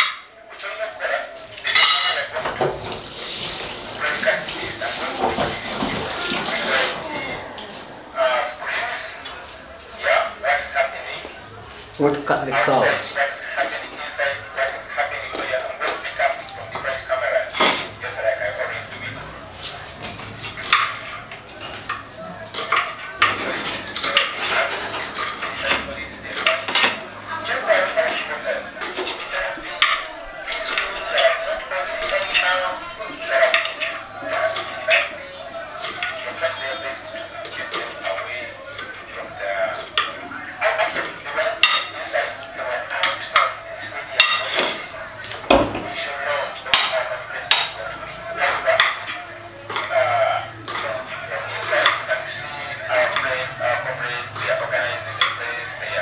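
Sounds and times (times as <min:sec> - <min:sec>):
knife clinking against plate: 0:01.7 - 0:02.6.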